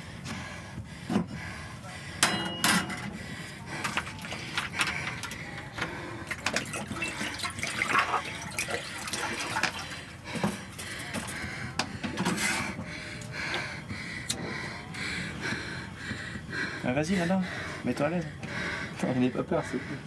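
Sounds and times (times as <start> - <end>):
metal knocks of kitchenware: 2.2 - 3.1.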